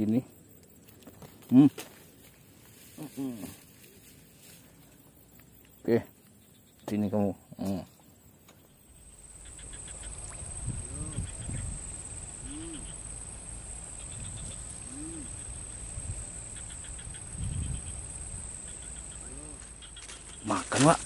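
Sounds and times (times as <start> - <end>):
high-pitched insect drone: 8.7 - 21.0
rising and falling animal call: 12.4 - 13.1, 14.0 - 15.6.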